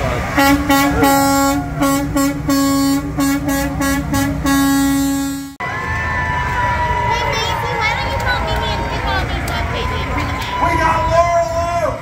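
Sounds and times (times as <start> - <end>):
vehicle horn honking: 0.4 - 5.6.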